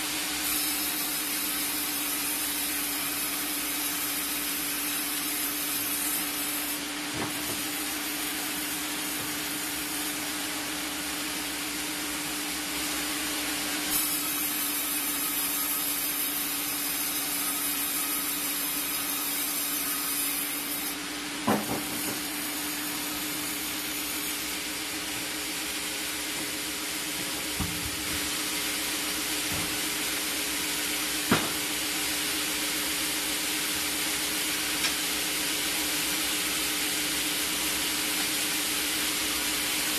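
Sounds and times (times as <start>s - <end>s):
saw blade cutting wood: 0.0s - 10.3s, 13.9s - 25.5s
sharp knocks: 31.3s - 31.6s.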